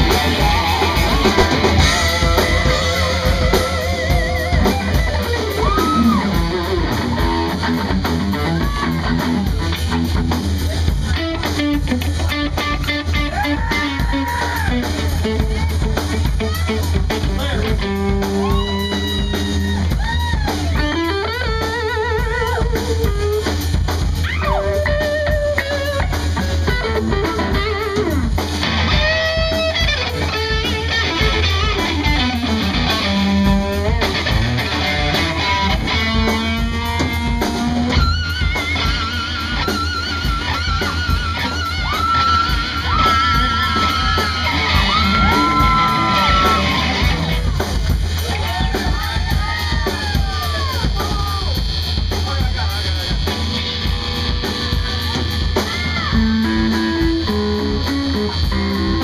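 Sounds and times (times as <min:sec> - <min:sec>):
bass guitar: 0:00.0 - 0:59.0
drum kit: 0:00.0 - 0:59.0
rhythm electric guitar: 0:00.0 - 0:59.0
electric guitar solo with bends: 0:24.2 - 0:47.6, 0:53.4 - 0:59.0.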